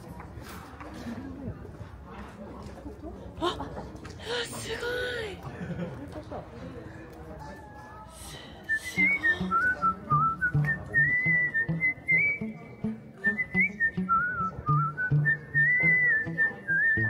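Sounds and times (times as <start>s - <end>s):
whistled melody: 8.7s - 17.0s.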